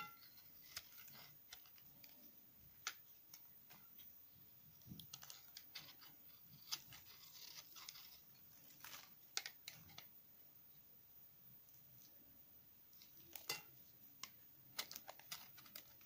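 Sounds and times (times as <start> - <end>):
knife scraping soap: 5.0 - 10.0.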